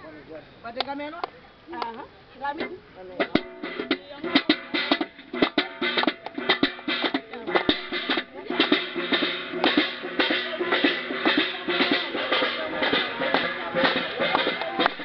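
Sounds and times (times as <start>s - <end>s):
metal basin beaten as drum: 2.5s - 15.0s
rhythmic hand clapping: 3.3s - 15.0s.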